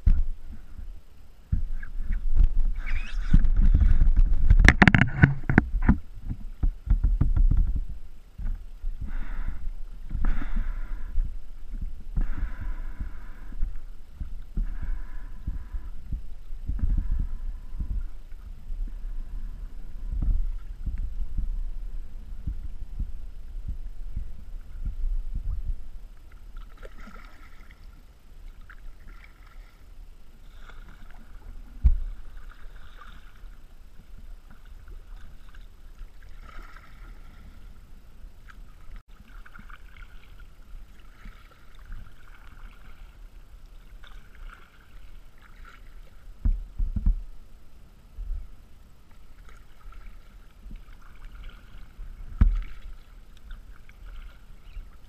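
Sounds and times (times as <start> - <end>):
paddle strokes splashing water: 0.0 - 47.2, 48.4 - 55.0
low thumps: 1.5 - 26.0.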